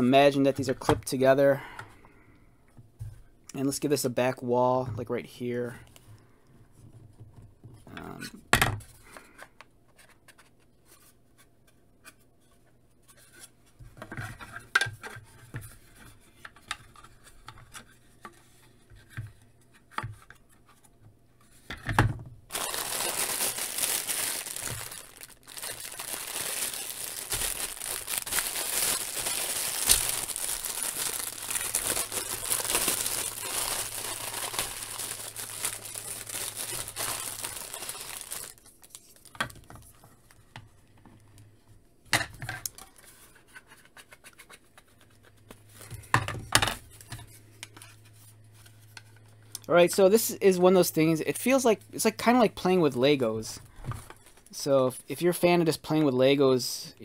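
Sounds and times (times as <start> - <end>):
plastic bag crinkling: 22.5 - 39.6.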